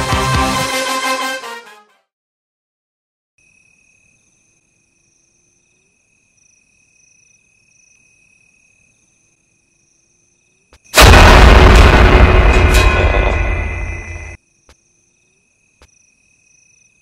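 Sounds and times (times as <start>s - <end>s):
crickets chirping: 3.4s - 11.0s, 13.4s - 17.0s.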